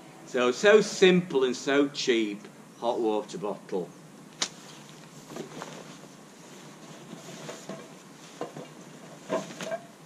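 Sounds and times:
outdoor background noise: 0:00.0 - 0:10.0
fabric rustling: 0:04.4 - 0:09.9.

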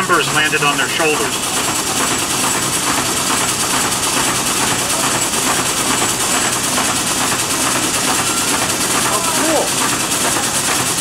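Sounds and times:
steam engine and pump hissing: 0:00.0 - 0:11.0.

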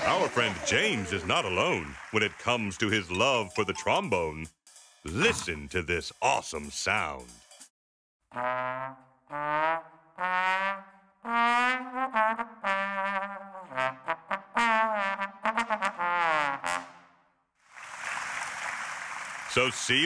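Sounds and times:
slide trombone solo: 0:08.3 - 0:17.1.

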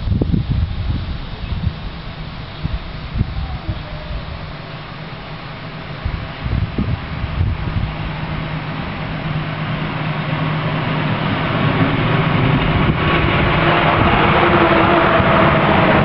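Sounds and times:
large vehicle driving past: 0:04.2 - 0:16.0.

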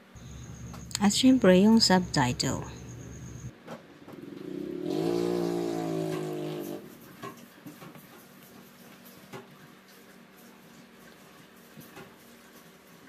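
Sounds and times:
vehicle engine hum: 0:00.0 - 0:03.5.

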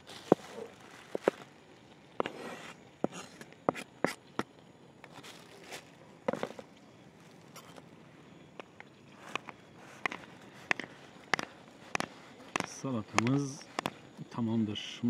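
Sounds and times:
knife cutting vegetables on board: 0:10.0 - 0:14.0.

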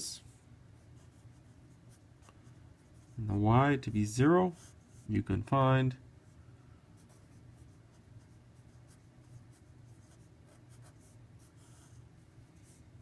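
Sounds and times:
low steady hum: 0:00.0 - 0:13.0
marker pen scratching on paper: 0:00.9 - 0:03.3, 0:04.5 - 0:05.1, 0:07.0 - 0:12.8.

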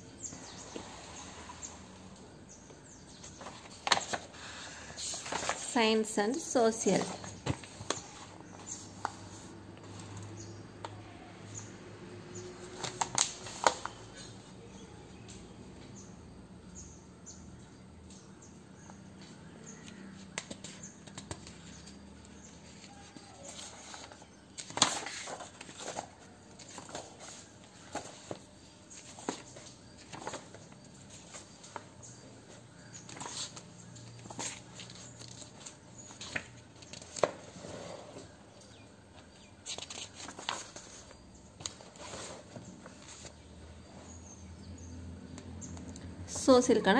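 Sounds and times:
paper pages turning: 0:03.2 - 0:05.8, 0:12.6 - 0:14.3, 0:20.3 - 0:32.0, 0:32.7 - 0:37.6, 0:39.6 - 0:43.4.

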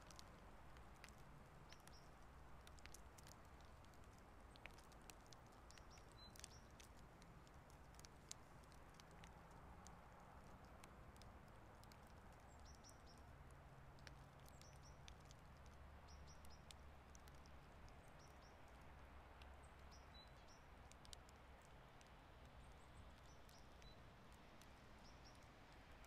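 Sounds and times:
faint scattered ticks: 0:00.0 - 0:26.0.

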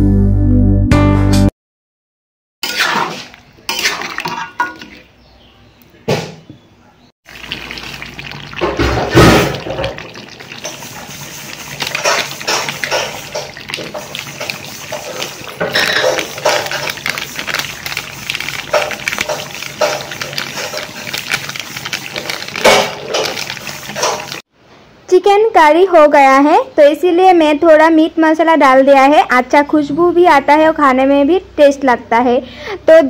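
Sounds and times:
spatula scraping pan: 0:02.6 - 0:05.0, 0:08.6 - 0:24.4
curry simmering and bubbling: 0:07.3 - 0:24.5.

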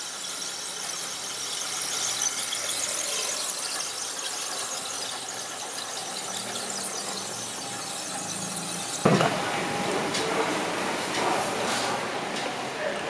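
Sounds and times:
model train squealing on track: 0:00.0 - 0:11.5
thump: 0:09.1 - 0:09.4.

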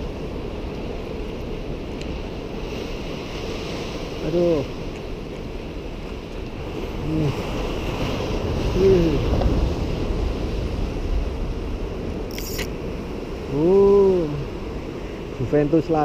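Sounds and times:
sea surf rushing: 0:00.0 - 0:16.0
wind buffeting microphone: 0:00.0 - 0:16.0
brief sharp rattle: 0:12.3 - 0:12.7.

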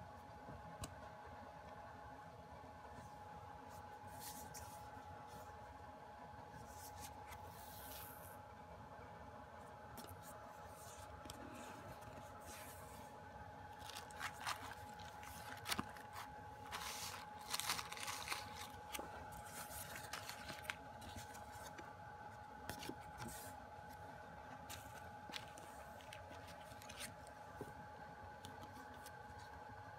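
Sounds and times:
faint steady hum: 0:00.0 - 0:29.9
paper and card rustling: 0:03.8 - 0:05.6, 0:10.0 - 0:21.9, 0:22.7 - 0:24.0, 0:24.6 - 0:27.8.

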